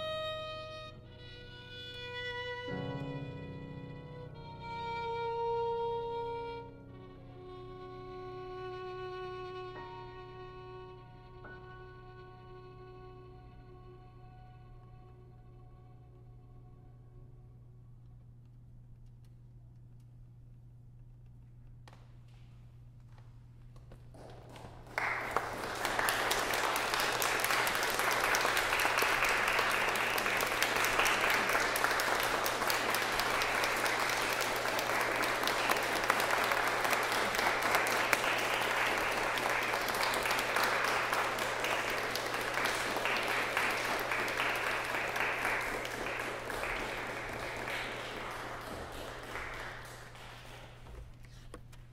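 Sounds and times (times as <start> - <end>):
audience applauding: 24.1 - 51.4.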